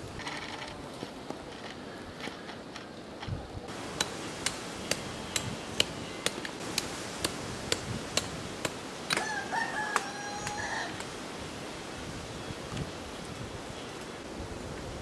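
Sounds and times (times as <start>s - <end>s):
rooster crowing: 9.1s - 11.0s.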